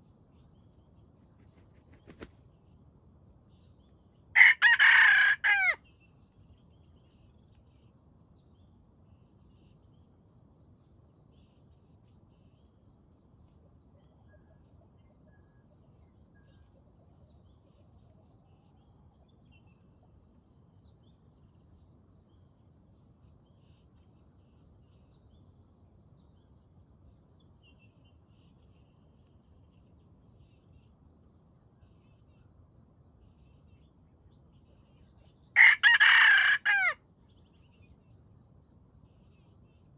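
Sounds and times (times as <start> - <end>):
rooster crowing: 4.4 - 5.8, 35.6 - 37.0.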